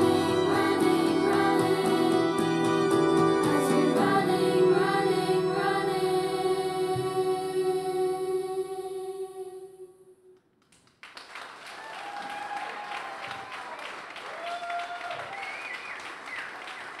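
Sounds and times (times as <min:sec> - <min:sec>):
children's choir singing: 0:00.0 - 0:10.2
audience applause: 0:11.0 - 0:17.0.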